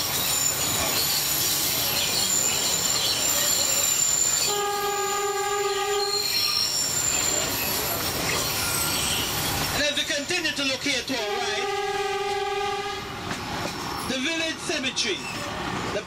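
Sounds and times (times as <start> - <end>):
high wheel squeal: 0.0 - 13.1
train running on track: 0.0 - 16.0
train horn: 4.4 - 6.3, 11.2 - 13.1.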